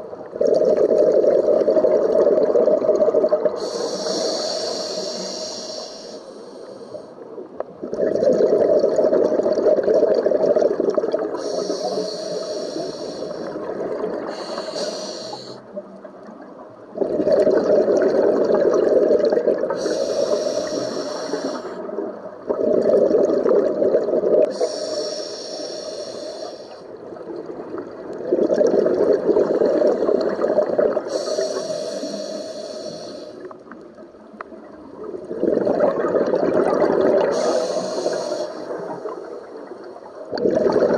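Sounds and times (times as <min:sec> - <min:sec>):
regulator inhale hiss: 0:03.5 - 0:07.2, 0:11.3 - 0:15.6, 0:19.7 - 0:21.8, 0:24.4 - 0:27.0, 0:31.0 - 0:33.6, 0:37.2 - 0:39.5
exhaust bubbles rushing: 0:35.3 - 0:37.3, 0:40.3 - 0:40.9.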